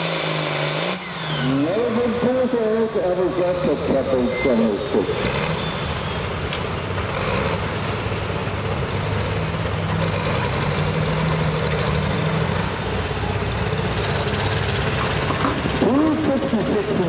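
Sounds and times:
tractor diesel engine idling: 1.1s - 7.0s, 12.3s - 17.0s.

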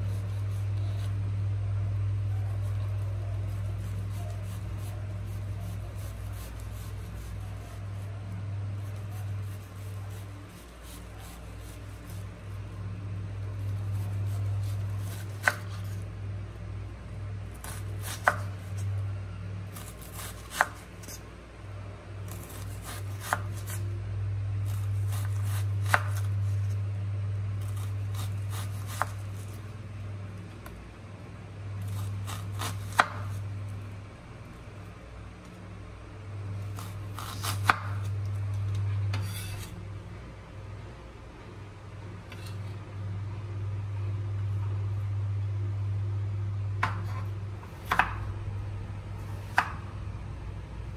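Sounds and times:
low steady hum: 0.0s - 50.9s
knife chopping on wooden board: 14.3s - 16.0s, 17.6s - 18.6s, 19.8s - 21.2s, 22.4s - 23.8s, 24.7s - 26.3s, 27.7s - 29.2s, 31.9s - 33.4s, 36.8s - 38.1s, 46.8s - 48.2s, 49.4s - 49.8s.

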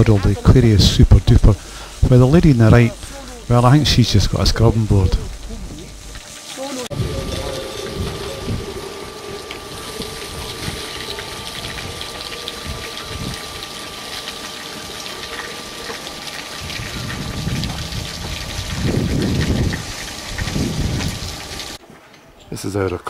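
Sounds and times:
faint steady high tone: 6.9s - 13.4s
wind buffeting microphone: 6.9s - 13.8s, 16.6s - 21.6s.

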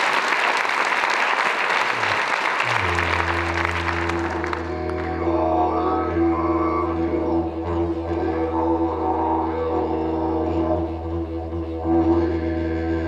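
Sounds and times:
audience applauding: 0.0s - 5.1s
didgeridoo drone: 1.9s - 13.0s.

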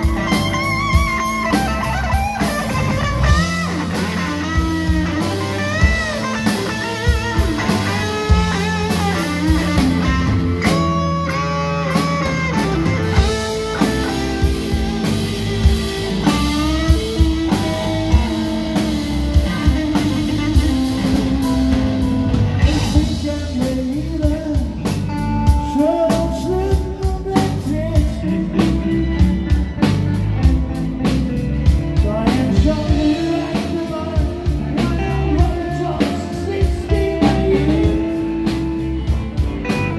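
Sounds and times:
bass guitar: 0.0s - 39.9s
drum kit: 0.0s - 39.9s
electric guitar lead: 0.0s - 39.9s
man singing: 22.6s - 30.2s, 31.0s - 39.9s.

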